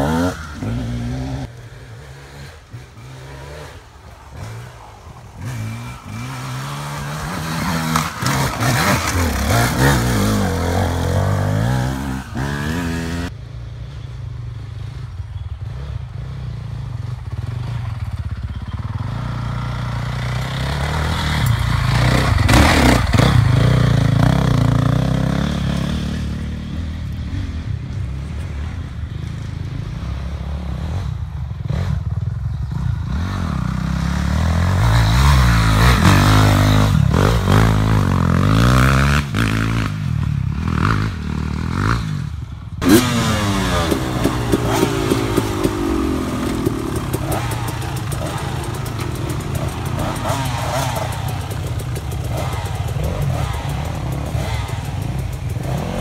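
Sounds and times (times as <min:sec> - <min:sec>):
dirt bike engines revving: 0:00.0 - 0:56.0.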